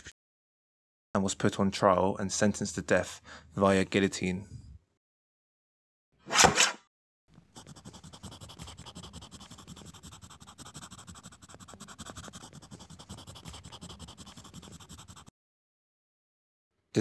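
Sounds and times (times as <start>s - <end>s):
pen scratching handwriting: 7.5s - 15.3s.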